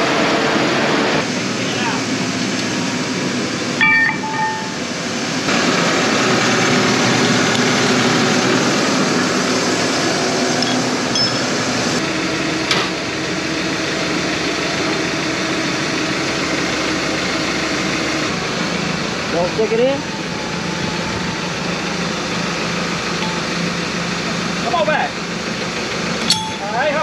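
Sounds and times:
tractor diesel engine running: 0:00.0 - 0:27.0
ringing metal clink: 0:03.8 - 0:04.8, 0:10.6 - 0:11.5, 0:26.2 - 0:26.8.

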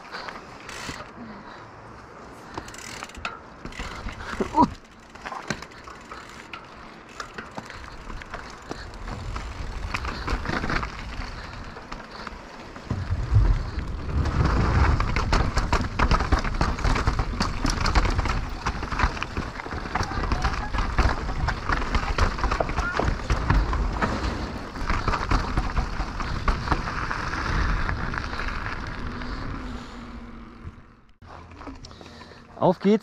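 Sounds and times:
bike tyres on dirt and stones: 0:00.0 - 0:33.0
bike chain and frame rattling: 0:00.1 - 0:01.4, 0:02.4 - 0:32.2
wind rumble: 0:07.0 - 0:31.2.

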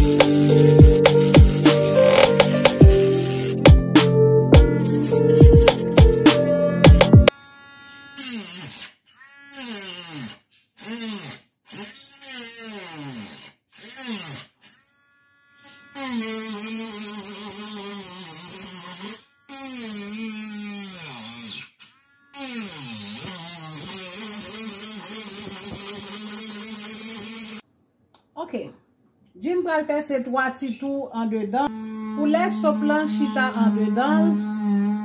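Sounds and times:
rotary tool motor whining: 0:07.3 - 0:27.6, 0:31.3 - 0:35.0.

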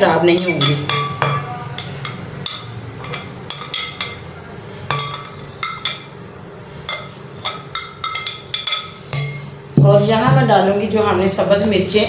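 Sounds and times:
spoon clinking on glass dish: 0:06.9 - 0:09.4.

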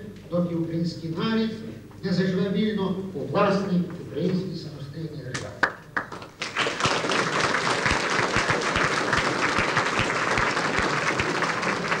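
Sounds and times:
audience applauding: 0:06.0 - 0:12.0.

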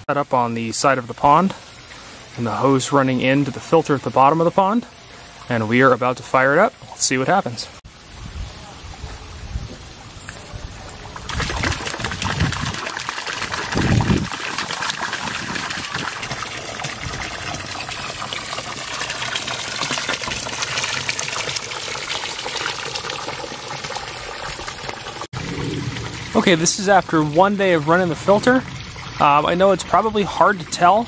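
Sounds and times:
water gushing and splashing: 0:10.4 - 0:31.0
low rumbles: 0:25.4 - 0:29.6.

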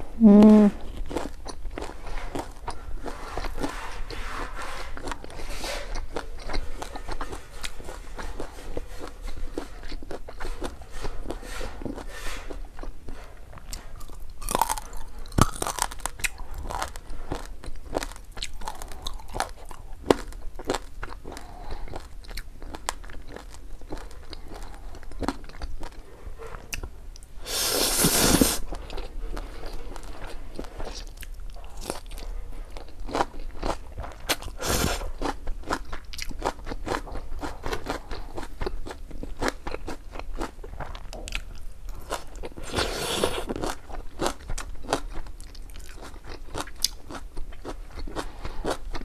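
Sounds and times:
crunching and chewing food: 0:00.6 - 0:49.0
noodles slurped: 0:27.4 - 0:29.1, 0:42.5 - 0:43.8.

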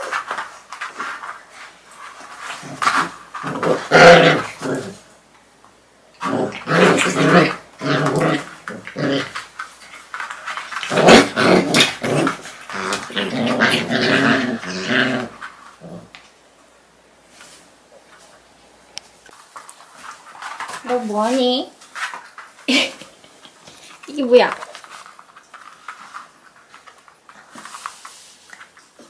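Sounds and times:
puppies growling while play-fighting: 0:02.4 - 0:05.1, 0:06.2 - 0:16.3.

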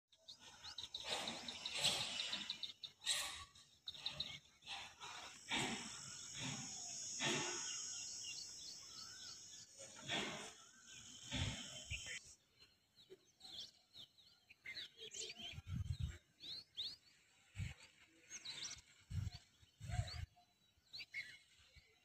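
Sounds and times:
small birds chirping: 0:00.1 - 0:22.0
high-pitched hiss: 0:05.2 - 0:12.3.

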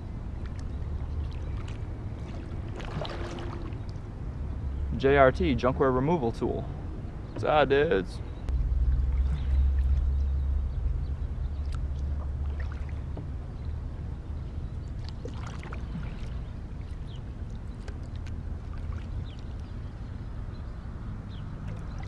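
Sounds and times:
steady low rumble: 0:00.0 - 0:22.0
paddle dipping and dripping: 0:00.2 - 0:05.0, 0:08.4 - 0:20.5, 0:21.4 - 0:22.0
small water splashes: 0:00.3 - 0:04.1, 0:08.8 - 0:10.4, 0:11.5 - 0:13.4, 0:14.8 - 0:20.0, 0:21.3 - 0:22.0.

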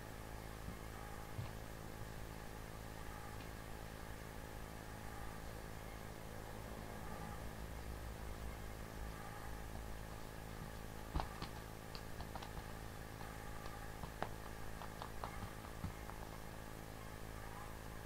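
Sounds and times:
steady low hum: 0:00.0 - 0:18.0
paw and toy tapping on carpet: 0:11.1 - 0:16.3.

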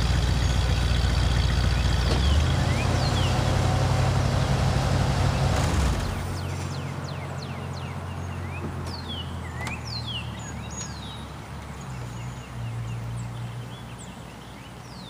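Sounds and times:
birds whistling: 0:00.0 - 0:04.1, 0:05.2 - 0:15.0
car engine idling: 0:00.0 - 0:08.3.

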